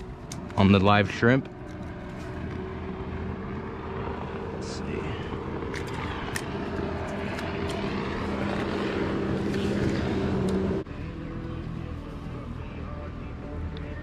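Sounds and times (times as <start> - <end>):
engine drone: 0.0 - 14.0.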